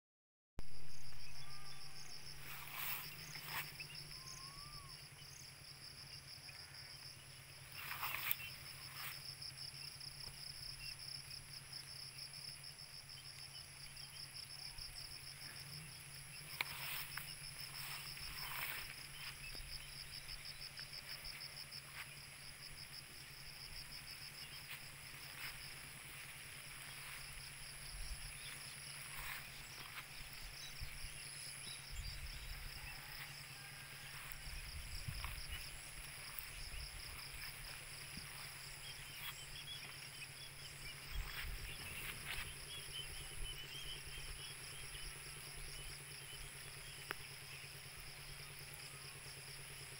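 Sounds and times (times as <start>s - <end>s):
insects trilling: 0.7s - 49.9s
faint high chirps: 0.8s - 5.2s.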